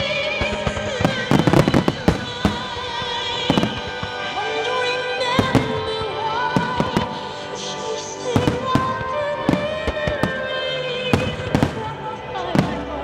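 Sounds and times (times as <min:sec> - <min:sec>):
firework shells bursting: 0:00.0 - 0:07.6
loud music with sung melody: 0:00.0 - 0:13.0.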